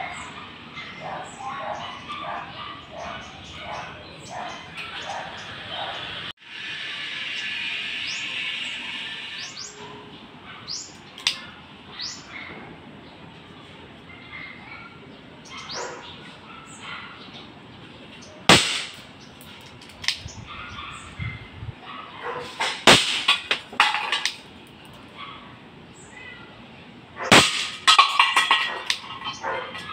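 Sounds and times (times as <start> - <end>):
birds chirping: 0.0 - 22.9, 28.0 - 29.9
airsoft gun shot: 18.5 - 19.0, 22.6 - 23.3, 27.3 - 27.8.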